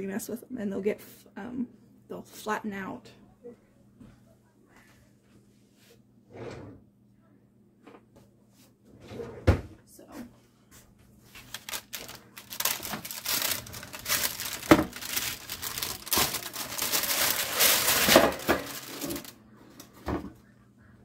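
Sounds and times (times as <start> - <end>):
parchment paper crinkling: 11.3 - 19.4.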